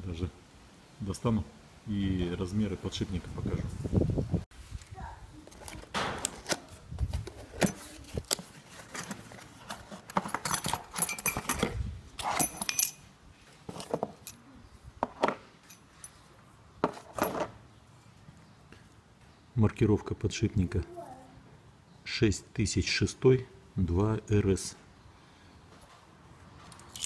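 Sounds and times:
cardboard scraping and rustling: 5.4 - 10.4
light metallic clinks: 12.2 - 13.1.

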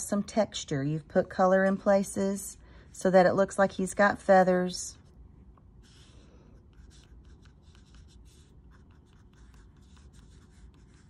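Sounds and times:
crayon scratching on paper: 5.8 - 11.0.

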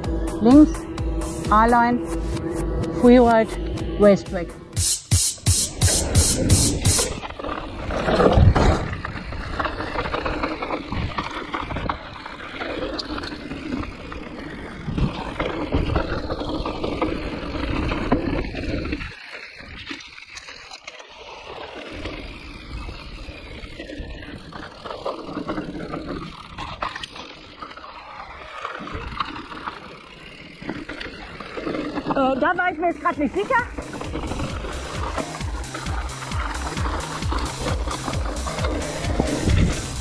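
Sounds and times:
bike tyres rattling over rough ground: 5.7 - 40.0
wind buffeting microphone: 39.1 - 40.0.

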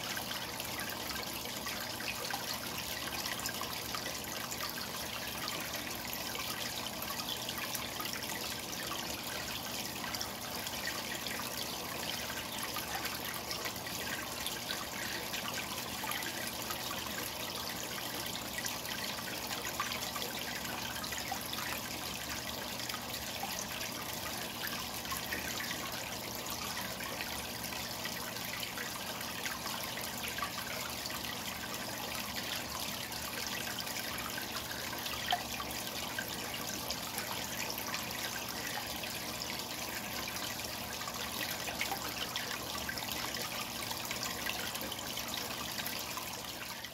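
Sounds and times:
aquarium water bubbling: 0.0 - 46.9.

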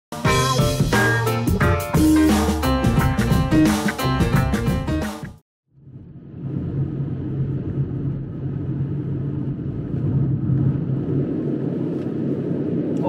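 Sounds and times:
car engine and tyre hum: 5.8 - 13.0.

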